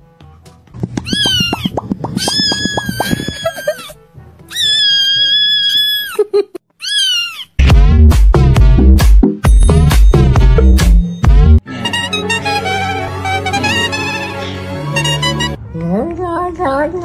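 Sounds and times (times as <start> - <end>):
beat: 0.8 - 3.5, 7.6 - 11.6
kitten screaming: 1.0 - 6.2, 6.8 - 7.6.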